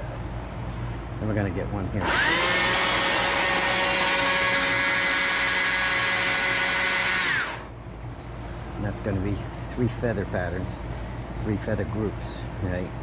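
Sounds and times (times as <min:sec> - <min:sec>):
chainsaw revving and cutting wood: 0:02.0 - 0:07.7.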